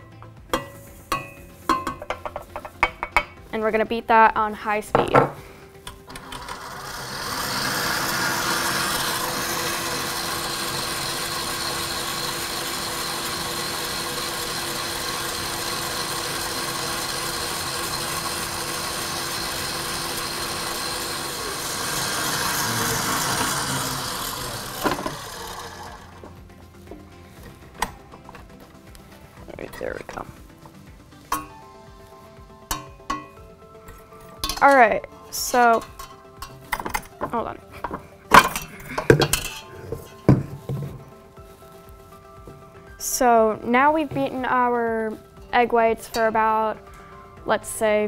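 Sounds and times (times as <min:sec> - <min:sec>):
stand mixer whisking: 0:06.1 - 0:26.3.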